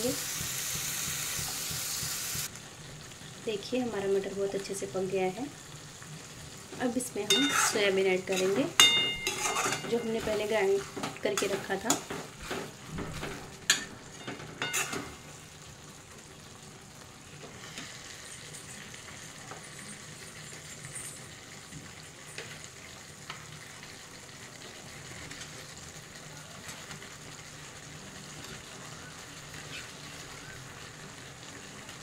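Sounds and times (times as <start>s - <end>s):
food sizzling in a pan: 0.0s - 32.0s
metal spatula scraping a pan: 7.2s - 15.2s.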